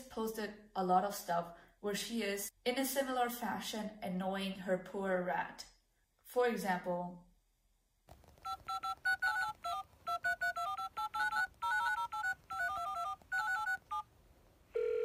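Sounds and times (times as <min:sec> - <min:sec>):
telephone keypad tones: 0:08.4 - 0:14.1.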